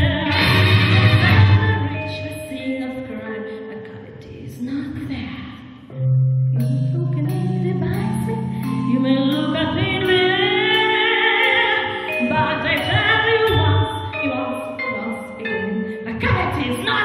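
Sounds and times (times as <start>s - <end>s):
instrumental accompaniment: 0.0s - 2.9s
woman singing into microphone: 0.0s - 5.5s, 6.6s - 17.0s.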